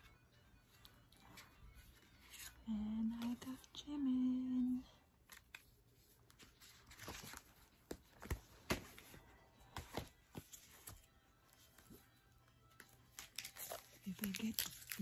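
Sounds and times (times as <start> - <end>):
paper pages rustling: 0.8 - 3.4, 5.2 - 12.1, 12.8 - 15.0.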